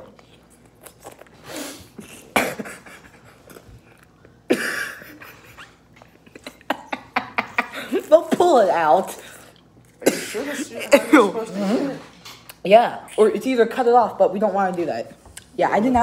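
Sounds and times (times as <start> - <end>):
loud puffs of breath: 1.4 - 2.0.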